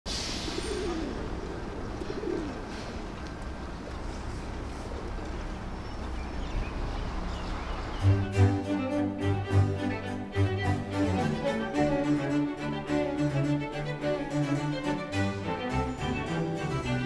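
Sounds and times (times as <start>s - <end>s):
pigeons cooing: 0.4s - 3.2s.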